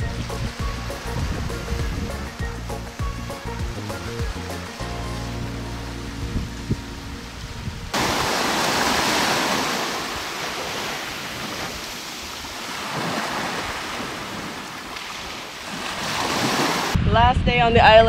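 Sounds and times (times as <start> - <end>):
music: 0.0 - 8.0
wind on microphone: 0.0 - 18.0
waves washing onto sandy beach: 7.9 - 17.0.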